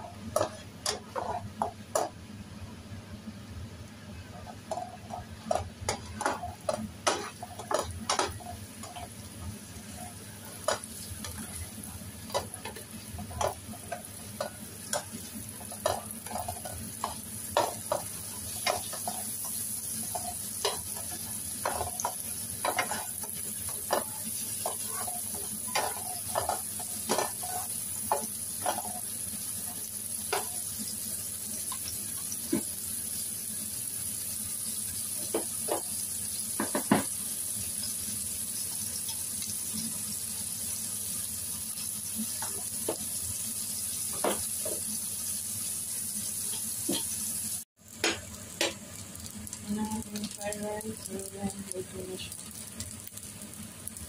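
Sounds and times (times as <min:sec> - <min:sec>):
spatula scraping and tapping pan: 0:00.0 - 0:02.2, 0:04.4 - 0:29.1
seafood sizzling in frying pan: 0:00.0 - 0:54.0.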